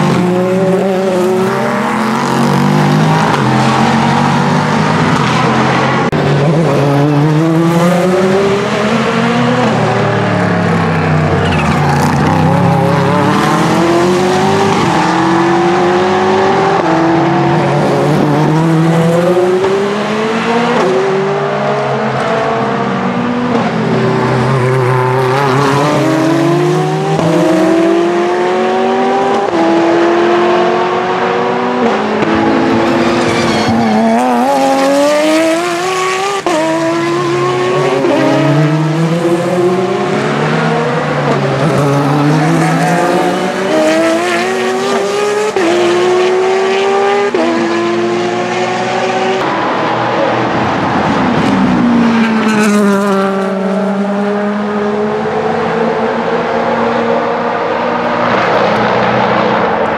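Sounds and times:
racing car engines accelerating: 0.0 - 59.9.

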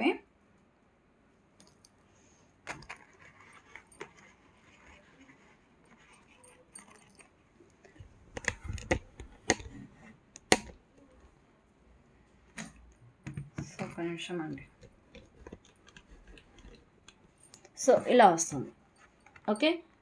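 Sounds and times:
metal jewellery clinking: 1.6 - 2.0, 2.7 - 9.6, 12.6 - 18.3.

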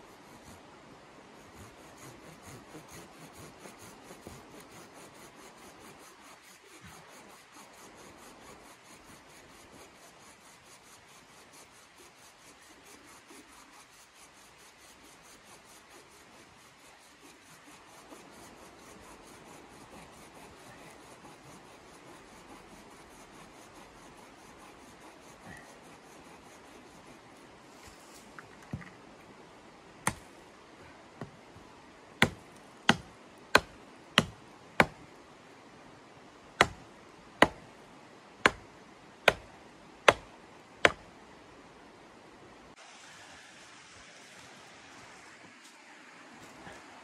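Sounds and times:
hand saw cutting wood: 1.4 - 27.2, 32.2 - 35.0, 36.6 - 36.8.

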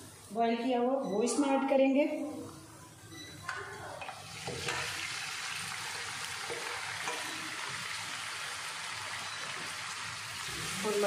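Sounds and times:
food frying sizzle: 3.8 - 11.0.

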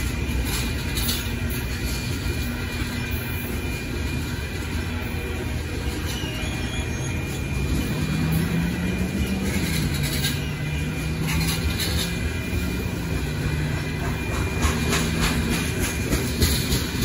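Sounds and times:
low drone: 0.0 - 17.0
rail-joint clicks: 0.0 - 17.0
train wheels rumbling on rails: 0.0 - 17.0.

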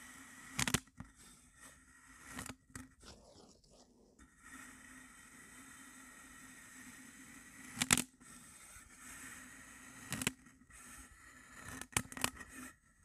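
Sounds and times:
spatula crunching through sand: 3.0 - 4.1.

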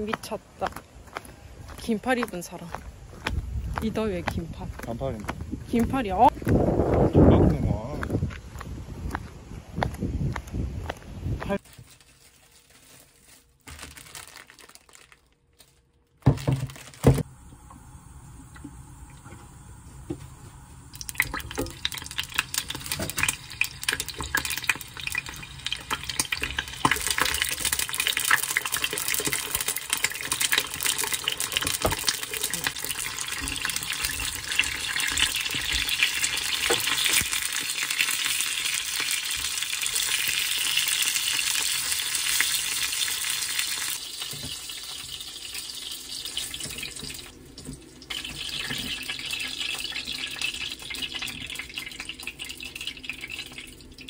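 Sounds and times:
dumplings sizzling in a frying pan: 21.0 - 47.3, 48.0 - 53.9.

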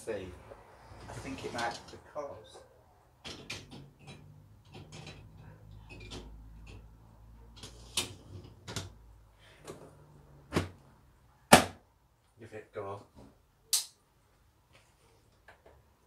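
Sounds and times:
crockery and rack clicking: 2.6 - 9.0.

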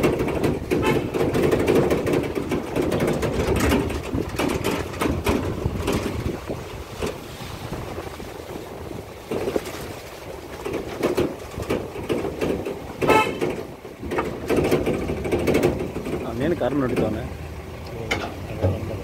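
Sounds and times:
car driving over bumpy dirt track: 0.0 - 19.0
car horn toot: 0.8 - 1.2, 13.0 - 13.5.

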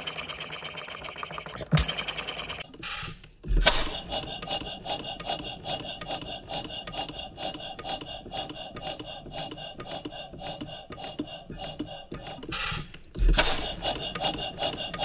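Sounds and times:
stationary engine clattering: 0.0 - 2.7.

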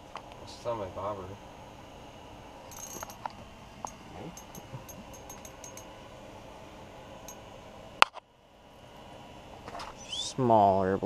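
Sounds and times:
fishing reel ticking: 2.7 - 3.2, 4.4 - 5.8.

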